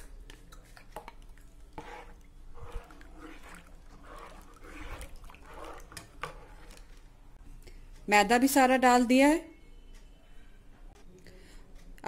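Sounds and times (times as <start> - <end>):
spoon stirring liquid in pot: 0.1 - 7.4.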